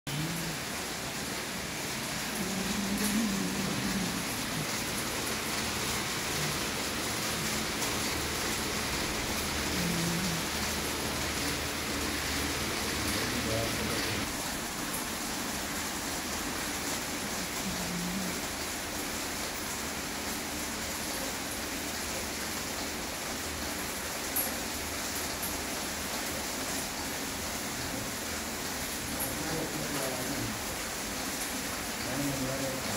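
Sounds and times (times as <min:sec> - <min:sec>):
belt conveyor running: 0:00.1 - 0:14.4
conveyor steady hiss: 0:00.1 - 0:32.9.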